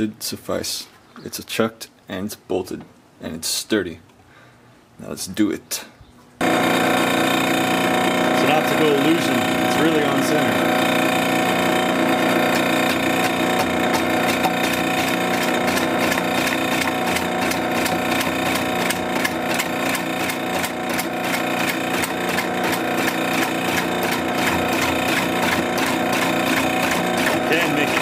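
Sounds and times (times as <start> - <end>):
lathe whine: 6.4 - 28.0
tool scraping wood: 6.4 - 28.0.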